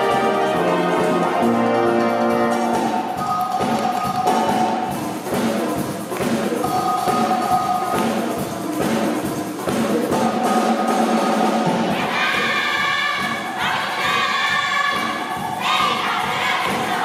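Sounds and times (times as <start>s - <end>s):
brass band playing upbeat tune: 0.0s - 3.7s.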